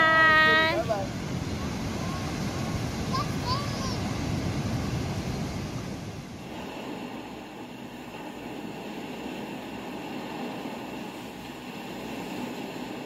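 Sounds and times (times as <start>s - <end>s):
steady rushing outdoor noise: 0.0s - 13.0s.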